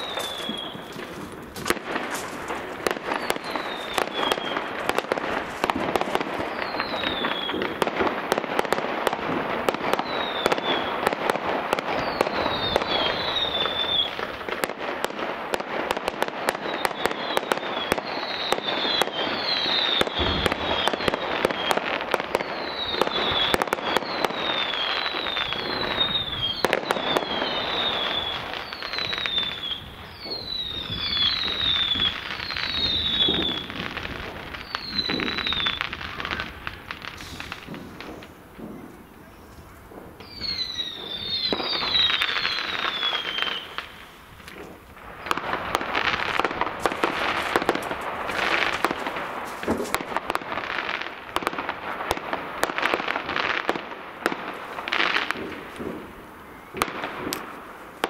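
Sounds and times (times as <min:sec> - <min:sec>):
falling firework whistles: 0:00.0 - 0:58.0
fireworks crackling and banging: 0:00.0 - 0:58.0
deep firework boom: 0:25.6 - 0:42.6.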